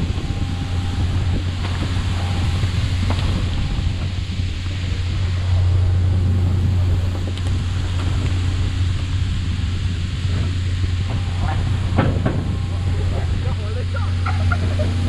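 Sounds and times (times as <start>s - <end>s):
boat engine humming: 0.0s - 15.0s
spraying water and sea hiss: 0.0s - 15.0s.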